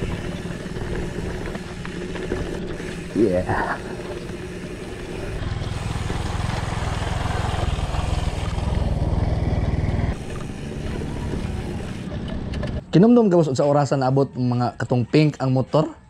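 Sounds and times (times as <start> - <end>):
bicycle tyres on gravel: 0.0 - 12.2
motorcycle engine passing: 0.0 - 12.9.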